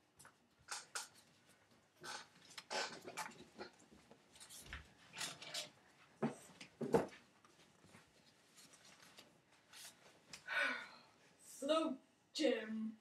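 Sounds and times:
rustling and brushing: 7.1s - 10.4s.

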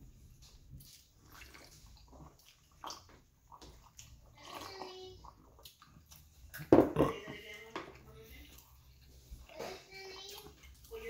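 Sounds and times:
faint slurps and sloshing: 0.0s - 11.0s
man swallowing and gulping: 5.5s - 7.4s.

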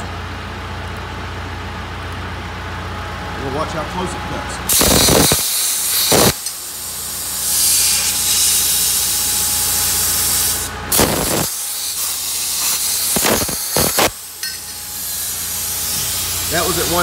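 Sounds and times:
plasma torch hissing: 4.7s - 17.0s.

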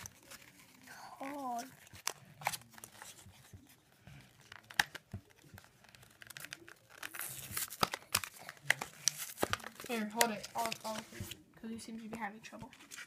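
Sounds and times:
plastic blister pack crinkling: 4.1s - 11.4s.

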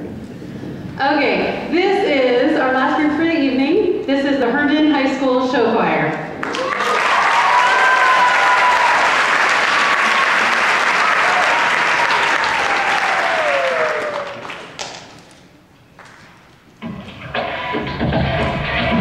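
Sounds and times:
high whoops: 6.4s - 14.5s
audience applauding and cheering: 6.4s - 15.4s.

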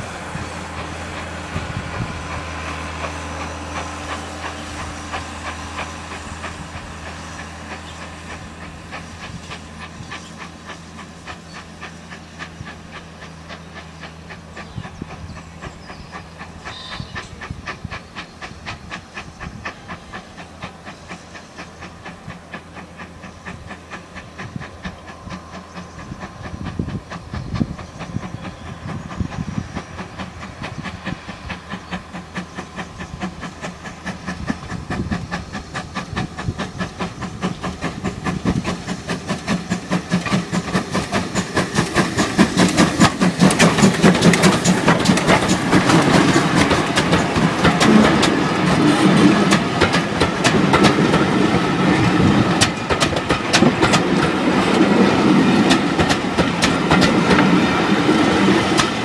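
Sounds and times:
steam locomotive exhaust beats: 0.0s - 59.0s
train wheels rumbling on rail: 0.0s - 59.0s.

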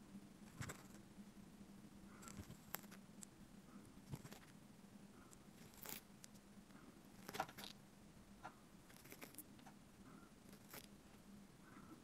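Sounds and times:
faint low hum: 0.0s - 12.0s
snail eating crackling clicks: 2.2s - 3.4s, 4.1s - 4.6s, 5.3s - 6.5s, 7.1s - 7.8s, 8.9s - 9.8s, 10.5s - 11.0s.

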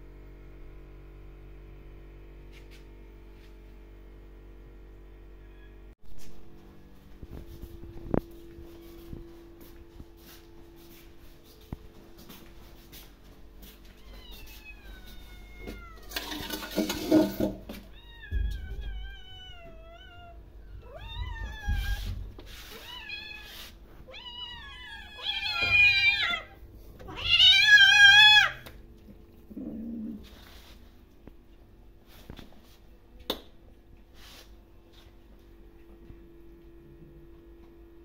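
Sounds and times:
kittens meowing: 22.7s - 28.6s.

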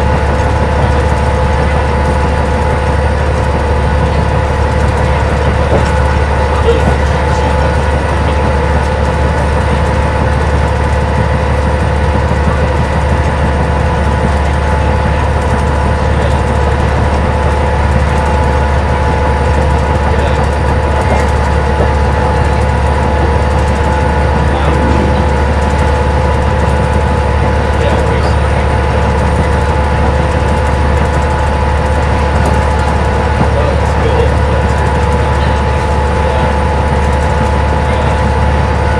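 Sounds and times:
bus diesel engine droning: 0.0s - 38.9s
road noise: 16.8s - 37.2s
held whining tones: 21.2s - 29.6s.

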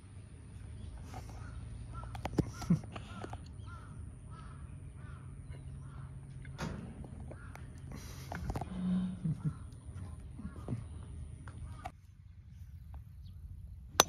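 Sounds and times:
crows cawing: 1.4s - 6.3s, 7.2s - 7.8s.

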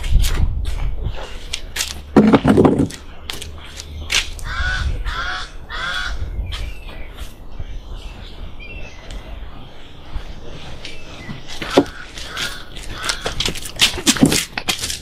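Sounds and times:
crow-like caws: 4.4s - 6.2s, 11.7s - 13.4s.

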